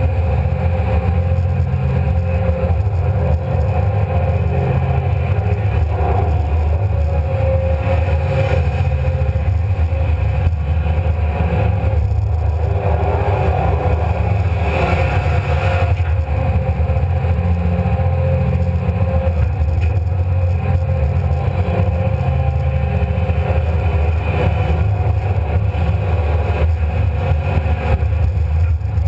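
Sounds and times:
excavator diesel engine running: 0.0s - 29.0s.

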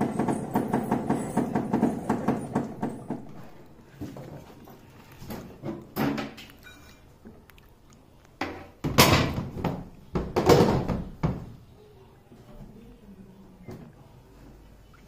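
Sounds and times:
plastic housing knocks and thuds: 8.5s - 11.5s.

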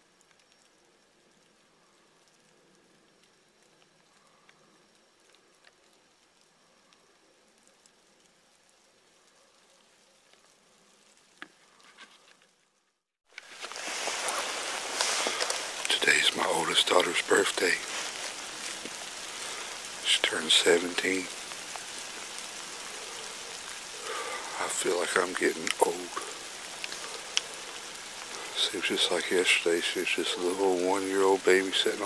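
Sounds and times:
light rain patter: 0.0s - 32.0s
loud close rustling: 13.3s - 20.0s.

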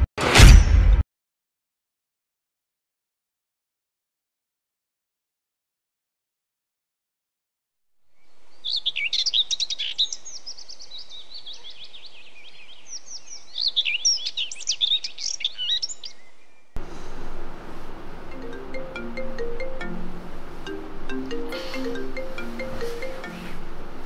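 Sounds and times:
small birds chirping: 8.1s - 24.0s
music: 18.3s - 23.6s.

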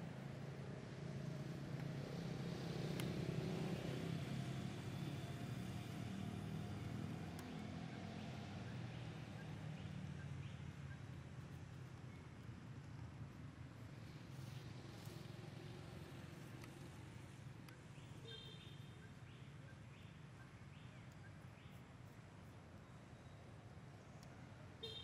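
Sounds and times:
engine droning: 0.0s - 21.1s
faint sharp clicks: 2.9s - 3.2s, 7.2s - 7.6s, 16.4s - 17.8s, 24.1s - 24.4s.

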